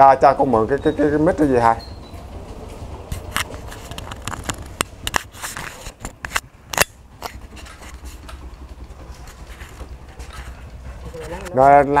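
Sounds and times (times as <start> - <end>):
sharp clicks and snaps: 3.2 - 9.0.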